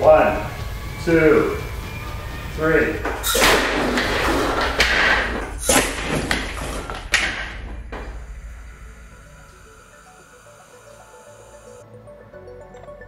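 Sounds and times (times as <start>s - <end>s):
compressed air blast: 3.2s - 4.0s
dart breaking cinder block: 3.2s - 6.6s.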